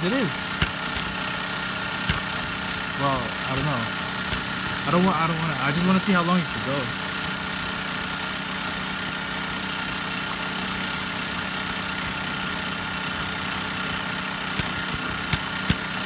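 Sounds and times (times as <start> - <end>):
small engine mechanical clatter: 0.0 - 16.0
sharp engine knocks: 0.5 - 5.0, 14.5 - 16.0.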